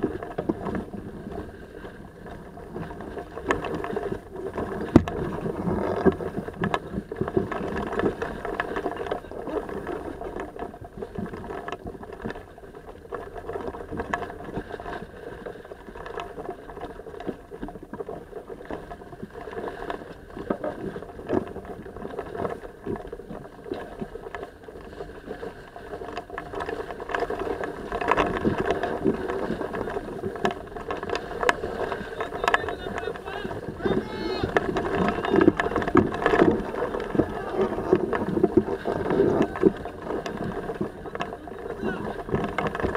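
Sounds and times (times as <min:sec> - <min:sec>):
water rushing along a hull: 0:00.0 - 0:42.9
wind: 0:00.0 - 0:42.9
rigging knocks and clicks: 0:02.8 - 0:12.4, 0:26.1 - 0:42.9.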